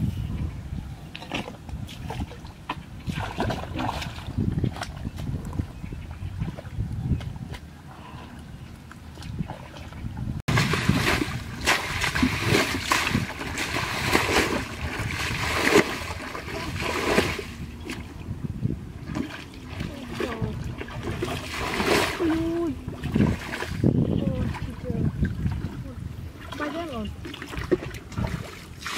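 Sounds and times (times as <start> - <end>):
water splashing from basin: 10.5 - 18.0, 19.1 - 25.8, 26.4 - 28.9.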